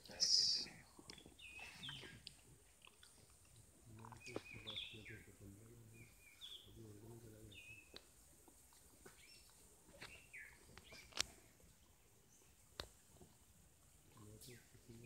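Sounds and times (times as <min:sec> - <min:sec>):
faint bird chirps: 0:00.1 - 0:02.2, 0:03.9 - 0:08.0.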